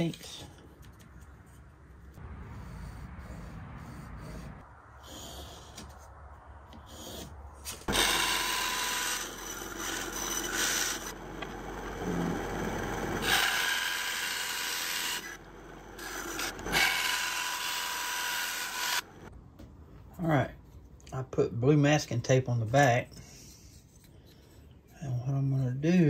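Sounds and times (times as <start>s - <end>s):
band saw cutting: 7.8s - 19.3s.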